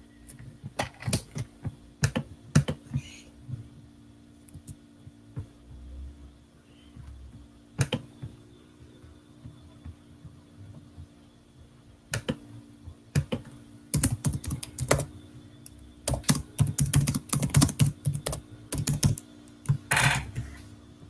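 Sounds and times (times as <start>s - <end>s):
keyboard keystroke clicks: 14.0s - 19.8s.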